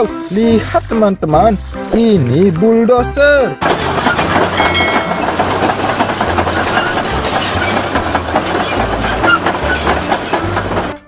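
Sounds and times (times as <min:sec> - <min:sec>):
bulldozer diesel engine running: 0:03.6 - 0:11.0
steel tracks clanking: 0:03.6 - 0:11.0.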